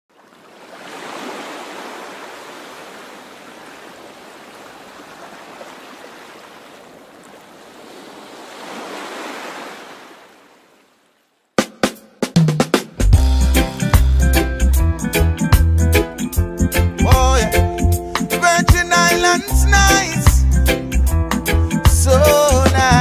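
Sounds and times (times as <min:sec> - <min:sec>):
ocean waves rushing: 0:00.1 - 0:11.2.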